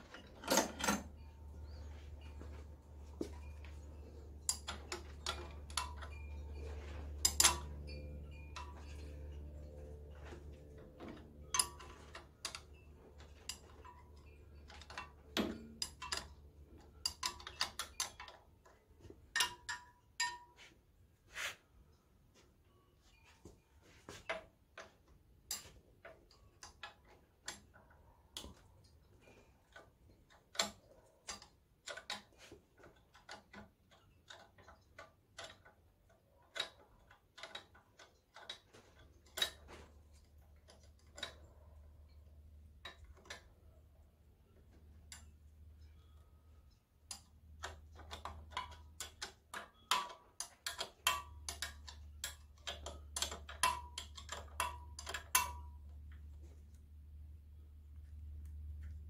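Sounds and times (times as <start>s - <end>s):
steady low hum: 0.0s - 19.8s
hand tool clicking on metal: 3.2s - 18.6s, 46.7s - 56.2s.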